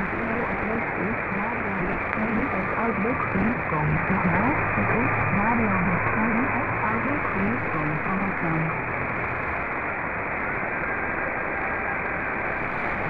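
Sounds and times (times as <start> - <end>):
radio static hiss: 0.0 - 8.9.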